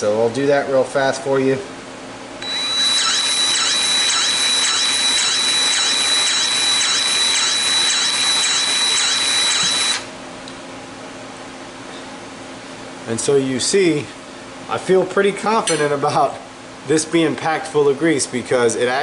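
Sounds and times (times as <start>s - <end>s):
grease gun motor whine: 2.4s - 10.1s
rhythmic pump strokes: 2.4s - 10.1s.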